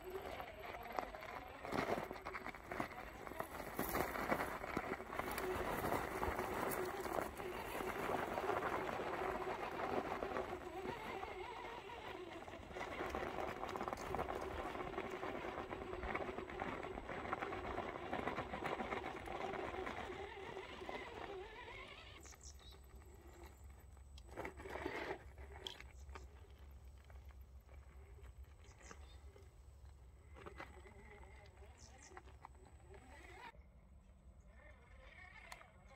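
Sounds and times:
electric motor whining: 0:00.0 - 0:27.2
tyres crunching over dirt and stones: 0:00.0 - 0:33.5.

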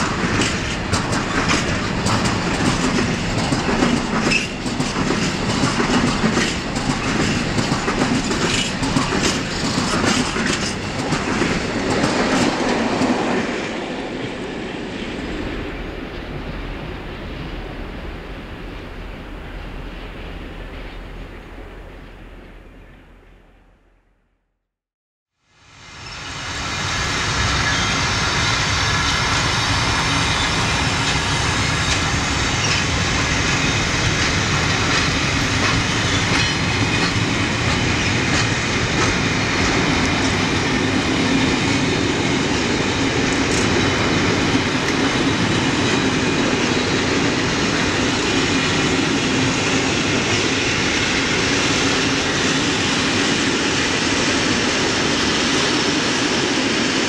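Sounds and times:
wheels clicking over rail joints: 0:00.0 - 0:13.3, 0:31.8 - 0:47.2
freight train rolling past: 0:00.0 - 0:23.5, 0:25.6 - 0:57.0.

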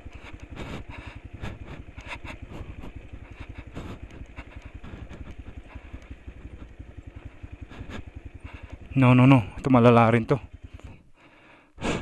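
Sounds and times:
motorcycle engine running slowly: 0:00.0 - 0:12.0.

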